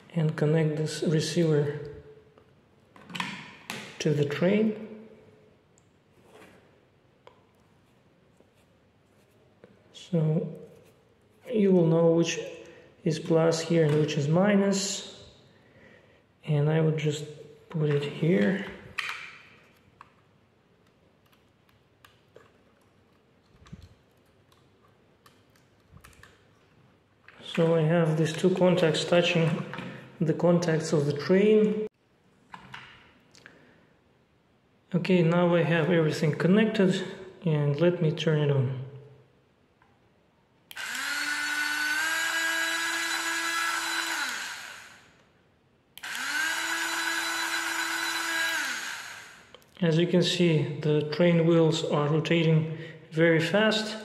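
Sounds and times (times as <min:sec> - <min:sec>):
toy train motor whine: 0:40.7 - 0:45.1, 0:46.0 - 0:49.5.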